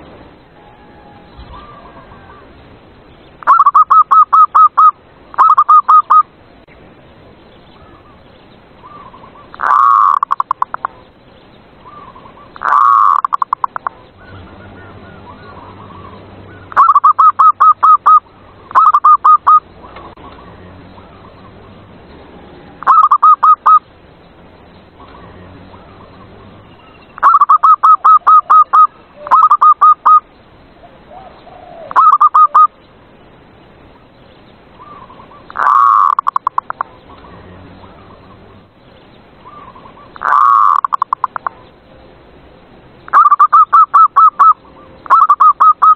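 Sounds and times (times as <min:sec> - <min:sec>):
dove cooing: 0:03.5 - 0:06.2, 0:08.8 - 0:11.0, 0:11.9 - 0:21.8, 0:22.7 - 0:23.8, 0:27.2 - 0:30.2, 0:30.8 - 0:32.8, 0:34.8 - 0:38.3, 0:39.4 - 0:41.6, 0:43.1 - 0:45.9.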